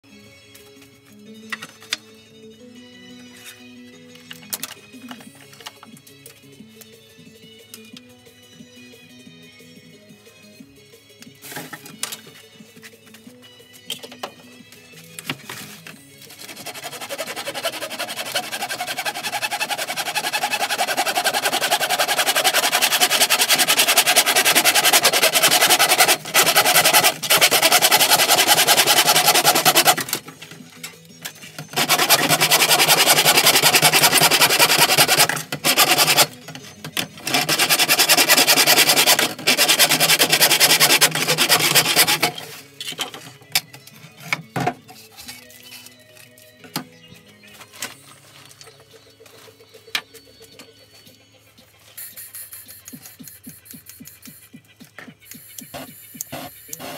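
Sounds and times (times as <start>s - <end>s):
hand saw cutting plastic tube: 16.3s - 45.9s.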